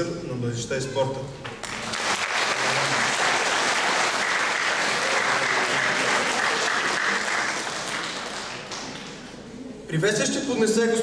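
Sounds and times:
audience applauding: 1.6s - 9.4s.

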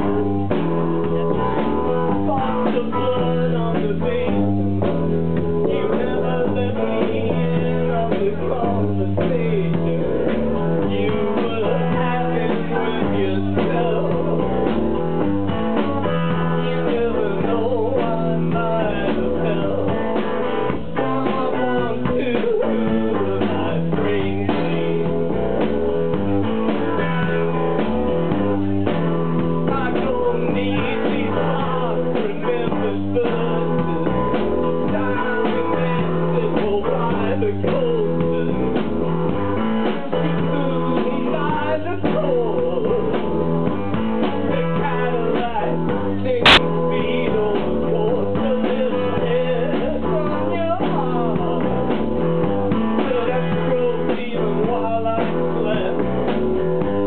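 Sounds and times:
live rock band playing: 0.0s - 57.0s.

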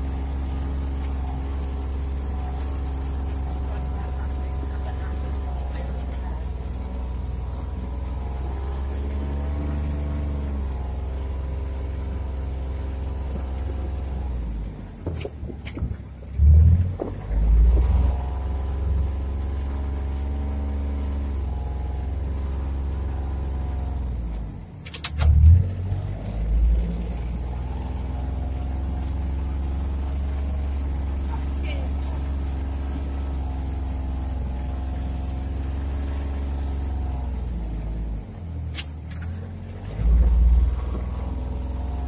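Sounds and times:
utility vehicle engine running: 0.0s - 42.0s
sharp clicks: 24.3s - 25.5s.

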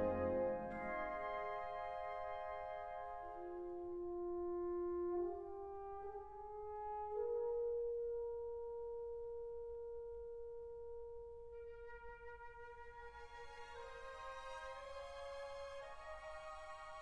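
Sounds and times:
slow instrumental music: 0.0s - 5.9s
brass line: 0.0s - 6.4s.

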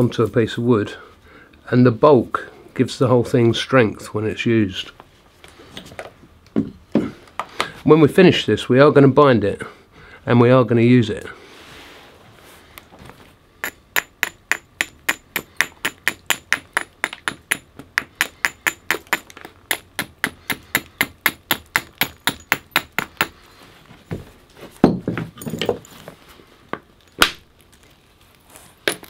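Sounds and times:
antler hammer tapping flint: 13.6s - 23.5s.

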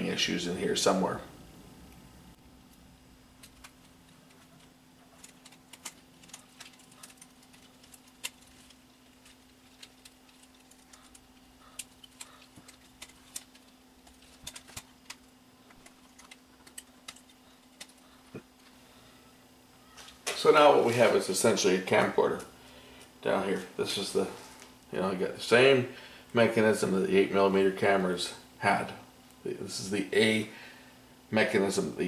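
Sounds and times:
faint steady hum: 0.0s - 32.0s
hands clicking and tapping mechanism: 3.4s - 18.4s.

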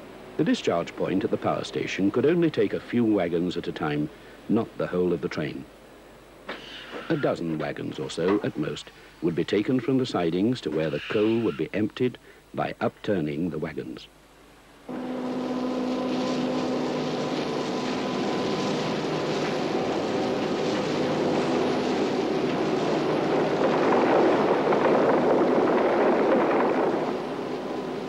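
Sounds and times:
machine hum: 14.1s - 28.0s
coal pouring out: 15.6s - 28.0s.

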